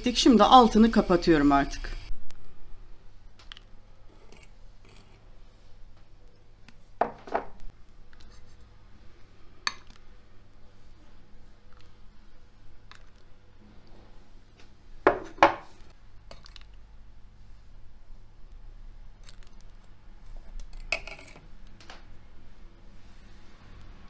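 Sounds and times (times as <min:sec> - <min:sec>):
bowls knocking and clinking: 0:20.8 - 0:21.5.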